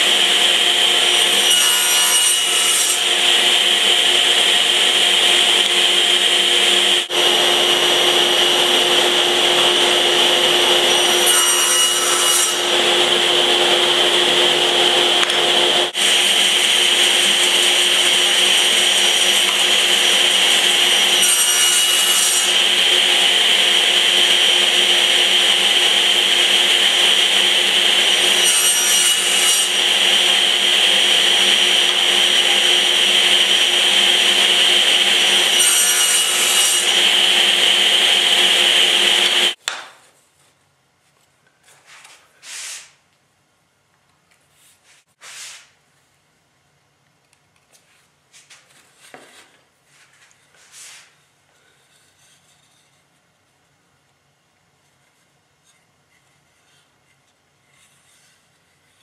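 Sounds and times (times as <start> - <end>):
power tool high whine: 0.0 - 11.3, 12.6 - 39.6
faint rubbing sounds: 40.1 - 43.0, 44.4 - 46.2, 47.7 - 53.7.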